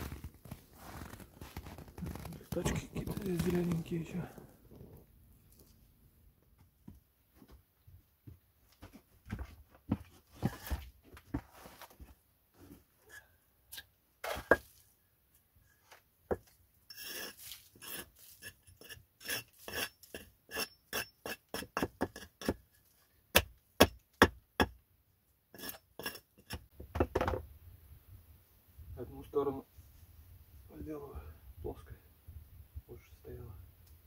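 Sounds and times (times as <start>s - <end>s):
hatchet chopping wood: 23.3s - 24.8s.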